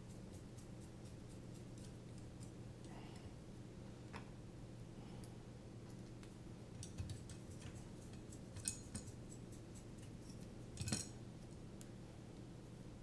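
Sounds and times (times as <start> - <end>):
small parts clicking and clattering: 6.8 - 9.2, 10.2 - 11.2.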